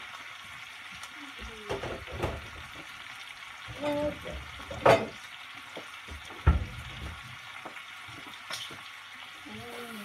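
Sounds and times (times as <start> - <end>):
ribs sizzling in a frying pan: 0.0 - 10.0.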